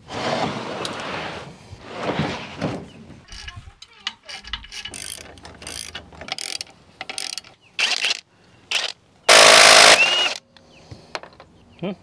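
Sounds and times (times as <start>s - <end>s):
ratchet wrench clicking: 4.3s - 8.0s.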